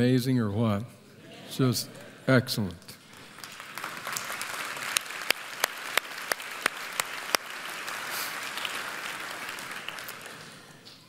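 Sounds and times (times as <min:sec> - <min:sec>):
crowd applauding: 0:03.0 - 0:10.9.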